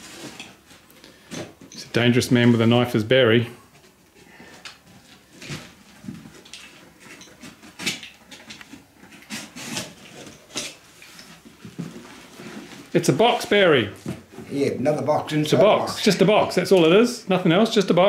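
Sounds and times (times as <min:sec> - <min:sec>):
cardboard rustling: 0:00.0 - 0:01.7, 0:04.8 - 0:16.6.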